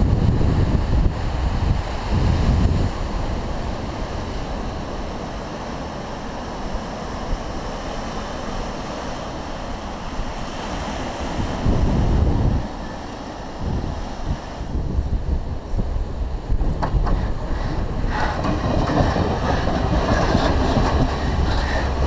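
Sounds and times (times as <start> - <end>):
ocean surf breaking on rocks: 0.0 - 22.0
wind buffeting microphone: 0.0 - 22.0.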